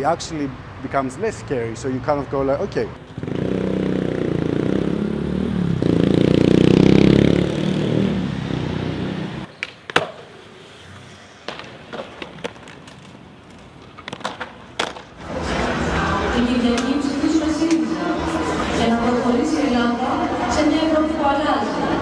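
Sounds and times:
city street traffic rumble: 0.0 - 22.0
skateboard clacks: 9.5 - 10.4, 11.4 - 15.2
skateboard rolling on stone: 9.5 - 15.2.

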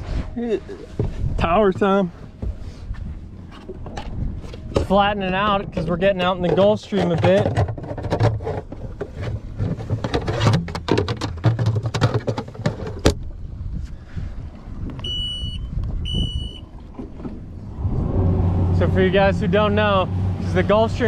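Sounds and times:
short electronic beeps: 15.0 - 16.6
outboard engines running: 16.0 - 21.0.

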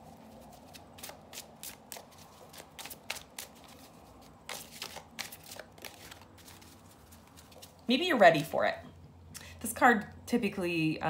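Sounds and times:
cards being shuffled: 0.0 - 8.5.

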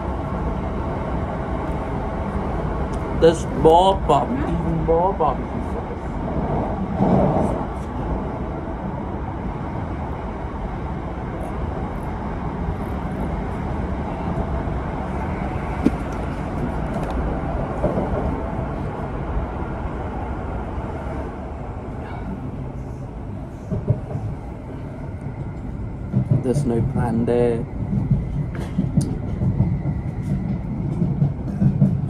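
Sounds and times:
train rumble inside carriage: 0.0 - 32.0.

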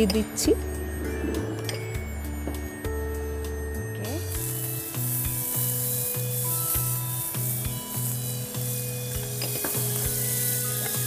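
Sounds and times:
background music: 0.0 - 11.0
butter sizzling in a frying pan: 4.3 - 11.0.

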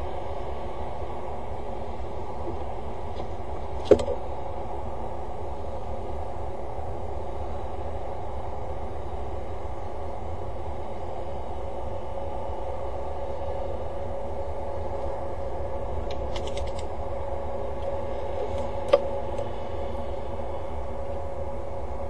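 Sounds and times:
mechanical hum with thin tone: 0.0 - 22.0
small clicks: 16.1 - 16.9.

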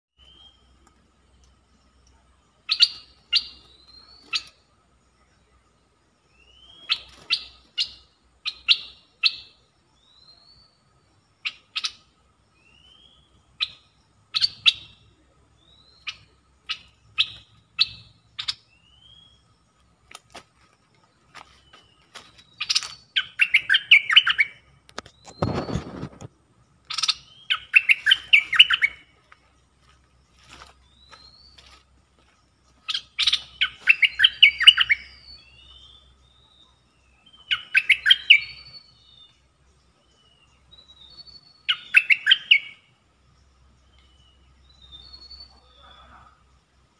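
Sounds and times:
bird chirping and whistling: 2.7 - 4.5, 6.4 - 10.7, 12.6 - 15.0, 15.7 - 19.4, 22.5 - 24.6, 25.2 - 26.1, 26.9 - 29.1, 32.9 - 36.5, 37.2 - 39.3, 40.7 - 42.8, 44.7 - 46.1
bird warbling: 26.9 - 29.1, 32.9 - 36.0.

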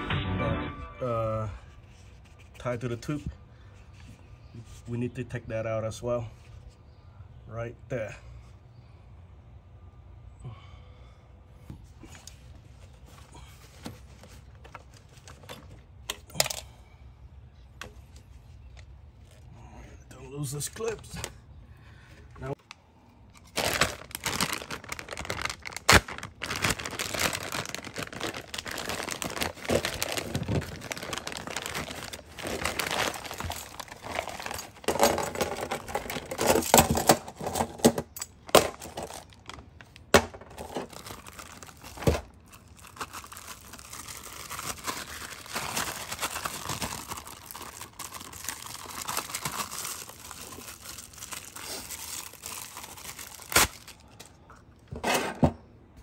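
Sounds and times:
plastic wrap crinkling: 23.4 - 37.6, 38.5 - 54.3.

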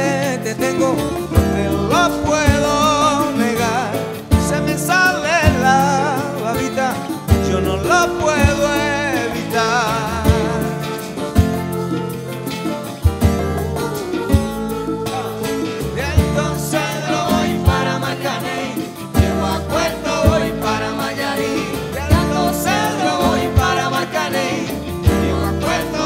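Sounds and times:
woman singing: 13.2 - 26.0.

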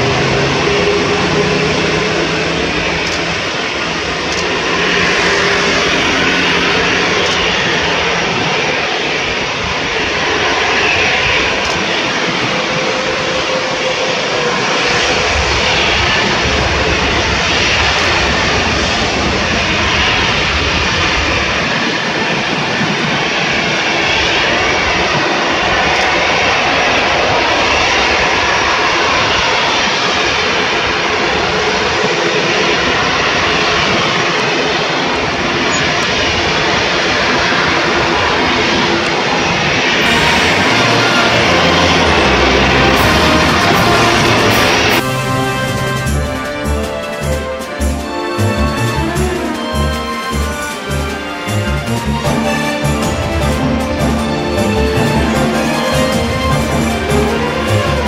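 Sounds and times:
jet engines running: 0.0 - 58.0.

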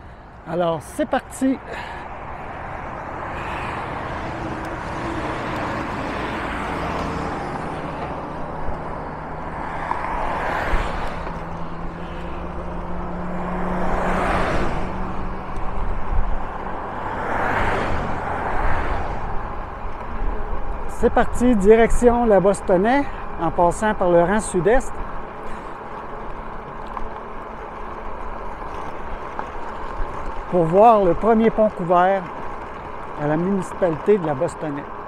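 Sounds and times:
highway traffic rush: 0.0 - 35.0
vehicles passing: 0.0 - 35.0.

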